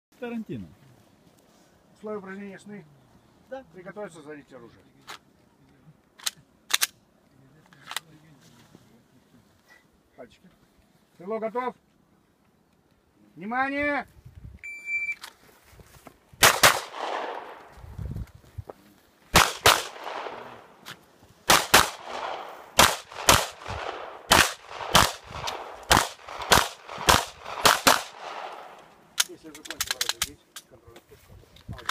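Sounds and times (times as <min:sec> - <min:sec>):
pistol shots: 0:16.4 - 0:17.7, 0:19.3 - 0:20.8, 0:21.5 - 0:28.9.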